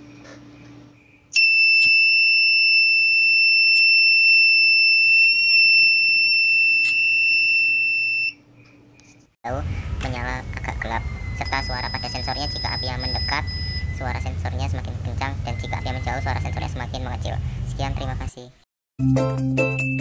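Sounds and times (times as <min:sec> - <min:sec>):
high-pitched alarm buzzer: 0:01.4 - 0:08.4, 0:10.9 - 0:14.4.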